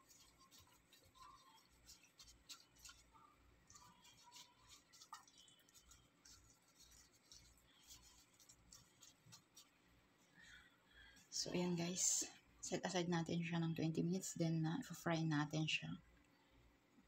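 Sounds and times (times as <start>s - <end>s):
glove rubbing and rustling: 0.0s - 10.4s.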